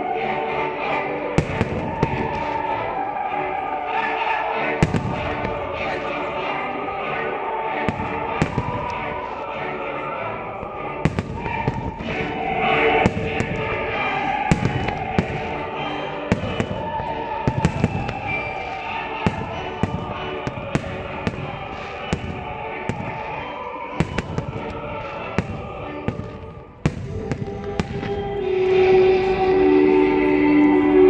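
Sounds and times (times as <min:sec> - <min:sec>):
music: 0:00.0 - 0:31.0
firework shells bursting: 0:07.8 - 0:09.4, 0:10.9 - 0:28.5.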